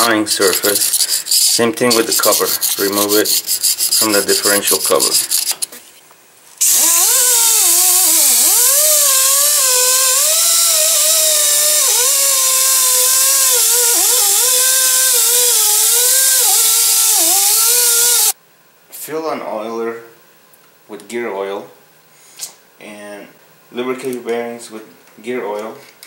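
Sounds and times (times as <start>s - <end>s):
die grinder grinding metal: 0.5s - 5.5s, 6.6s - 18.4s.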